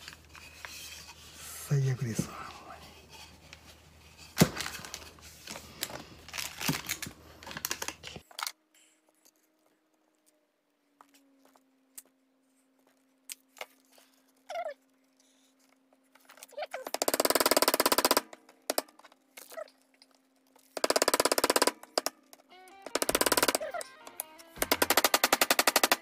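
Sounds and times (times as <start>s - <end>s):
rustling and tool clicks: 15.1s - 26.0s.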